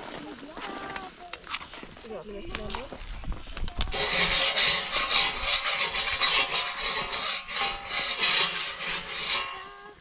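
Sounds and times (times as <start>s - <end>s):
rhythmic rasping strokes: 3.9s - 9.9s.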